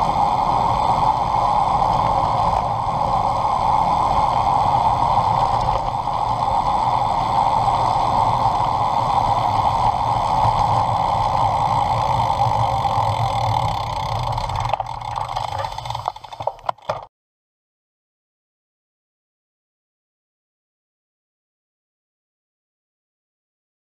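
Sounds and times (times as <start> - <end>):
wind over microphone: 0.0 - 16.7
bike tyres rumbling on tarmac: 0.0 - 17.1
sharp clicks and knocks: 13.6 - 17.1.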